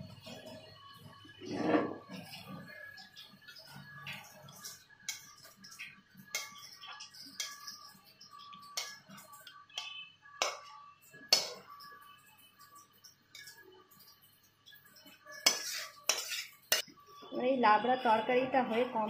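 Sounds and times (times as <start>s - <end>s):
metal spatula scraping a pot: 1.4s - 2.9s, 15.2s - 16.9s.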